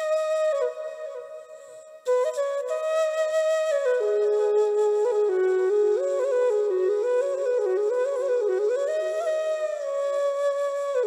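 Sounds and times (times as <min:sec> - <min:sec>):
solo flute-like melody: 0:00.0 - 0:11.0.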